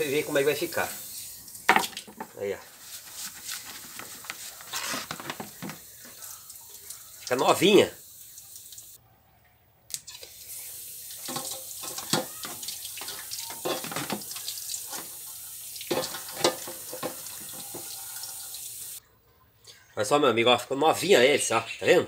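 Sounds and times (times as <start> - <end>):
water splashing into metal basin: 0.0 - 2.3, 10.1 - 19.0
water from hose splashing: 0.0 - 9.0, 10.1 - 19.0.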